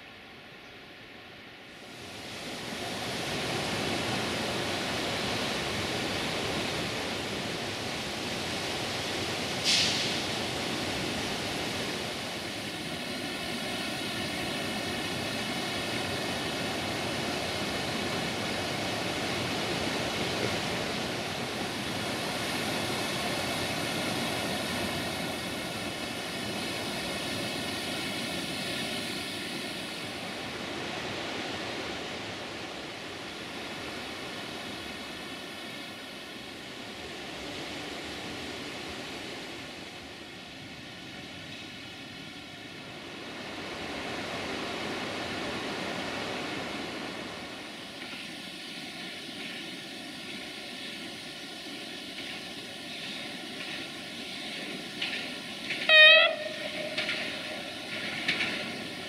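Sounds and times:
waterfall rushing: 52.4 - 59.0.

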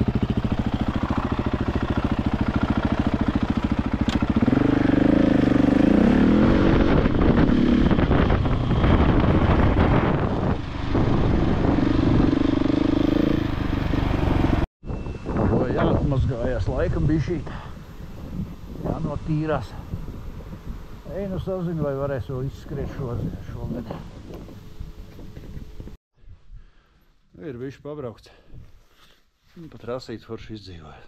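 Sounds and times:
motorcycle engine idling and revving: 0.0 - 15.1, 17.8 - 26.0.

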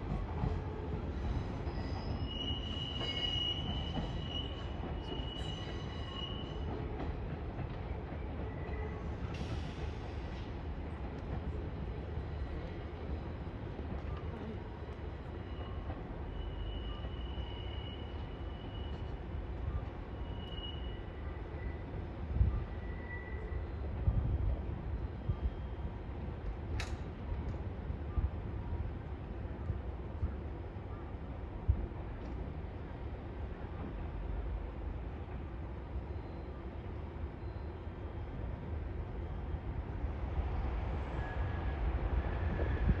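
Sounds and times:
low train rumble: 0.0 - 43.0
train wheels squealing: 0.6 - 10.5, 14.9 - 24.1, 25.0 - 26.0, 35.9 - 38.2, 40.9 - 43.0
faint high-pitched squeal: 15.4 - 21.9.

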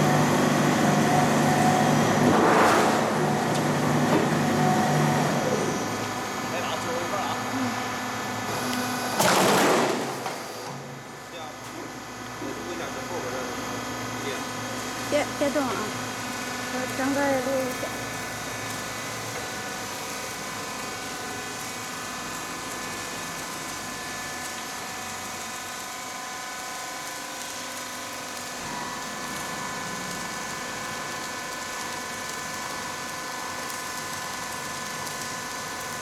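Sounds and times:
machine whine: 0.0 - 10.8.

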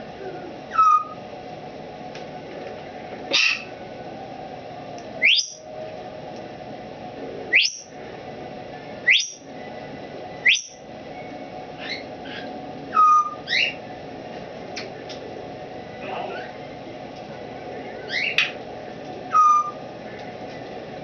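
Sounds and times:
parrot whistling: 0.7 - 1.2, 5.2 - 5.7, 7.5 - 8.0, 9.0 - 9.5, 10.4 - 10.8, 11.8 - 13.8, 19.3 - 19.8.

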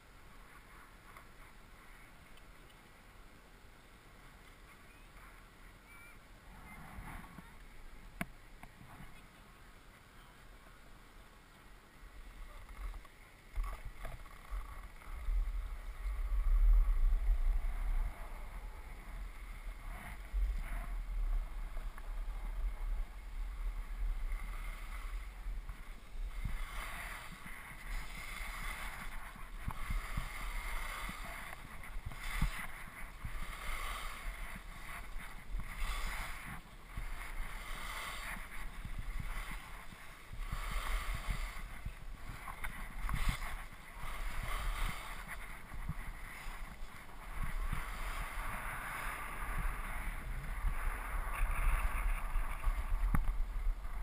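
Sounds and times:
skis scraping packed snow: 0.0 - 3.5, 6.4 - 10.7, 11.4 - 54.0
wind buffeting microphone: 12.2 - 54.0.

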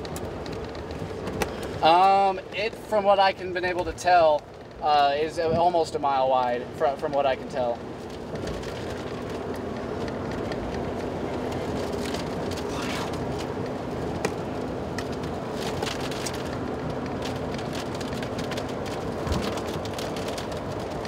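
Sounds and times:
car road and engine drone: 0.0 - 21.0
raindrops ticking on windshield: 0.0 - 21.0.

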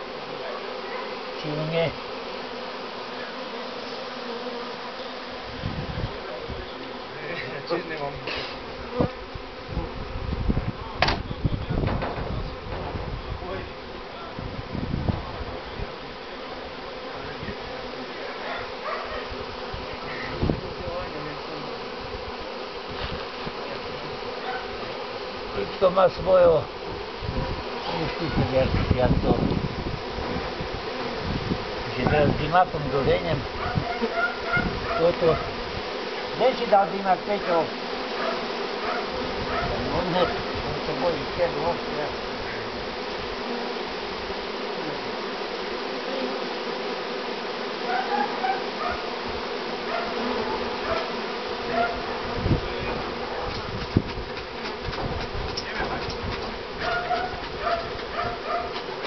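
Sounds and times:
bee swarm humming: 0.0 - 59.0
honeybees buzzing: 0.0 - 59.0
short thump: 11.0 - 13.1, 53.4 - 58.1.

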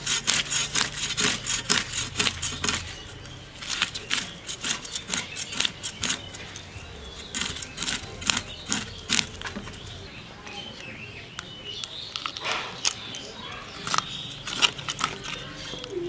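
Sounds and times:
fish scales rasping on blade: 0.0 - 6.6, 7.2 - 9.8, 12.4 - 15.9.

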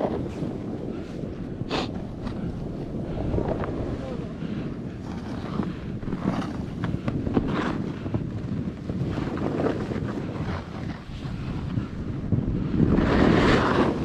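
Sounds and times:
snowboard carving through snow: 0.0 - 14.0
wind buffeting microphone: 0.0 - 14.0.

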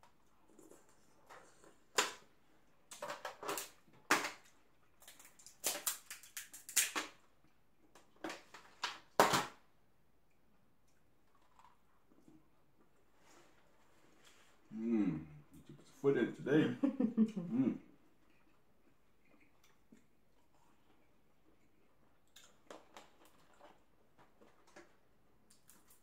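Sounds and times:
crab shells cracking: 2.9 - 7.2.

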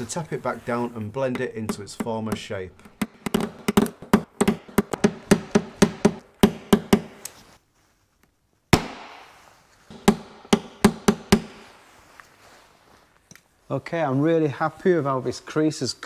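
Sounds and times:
loud sharp crack: 8.8 - 9.5.

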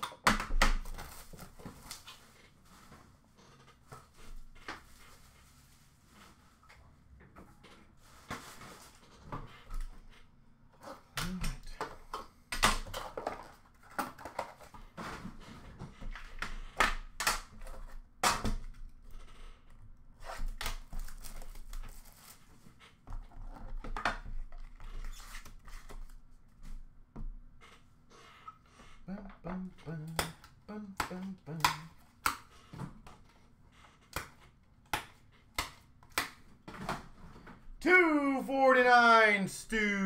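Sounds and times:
cardboard and cards rustling: 0.8 - 3.1, 20.4 - 26.2.

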